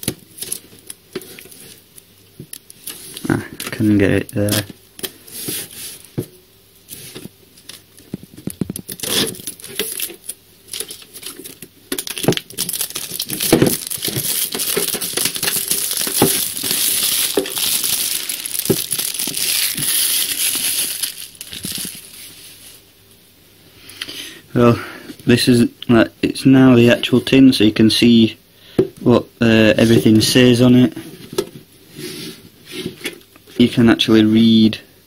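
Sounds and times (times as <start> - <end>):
plastic shrink-wrap crinkling: 7.6 - 22.7.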